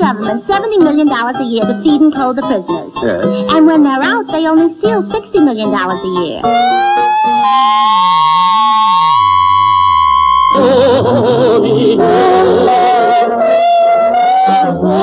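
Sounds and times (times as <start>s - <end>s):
wavering notes with vibrato: 0.0s - 15.0s
high electronic tone: 6.4s - 15.0s.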